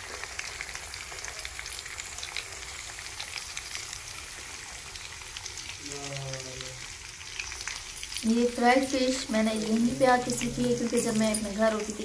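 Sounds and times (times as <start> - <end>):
fish deep-frying in oil: 0.0 - 12.0.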